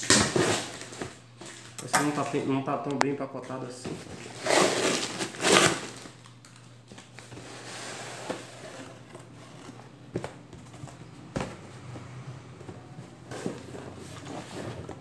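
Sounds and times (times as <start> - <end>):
cardboard and tape ripping: 0.0 - 1.2, 4.1 - 6.3
cardboard rustling: 3.8 - 15.0.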